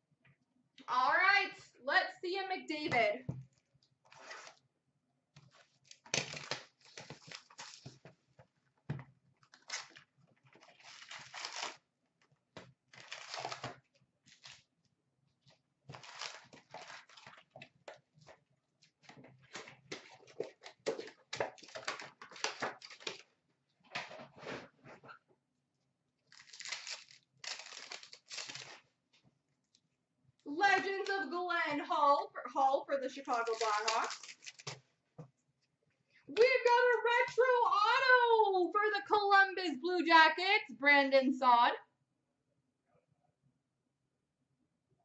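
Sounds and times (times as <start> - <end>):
trading cards rustling and scraping: 33.2 - 34.8.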